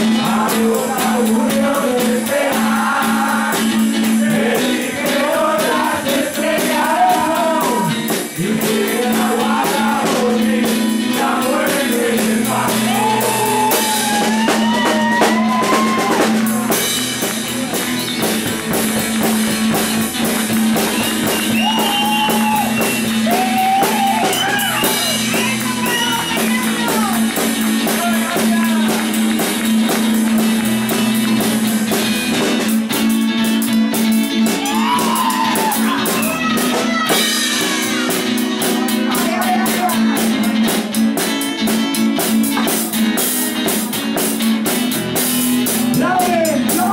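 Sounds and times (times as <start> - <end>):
man singing: 0.0 - 14.4, 45.9 - 46.9
acoustic guitar strumming: 0.0 - 46.9
drum kit with cymbals: 0.0 - 46.9.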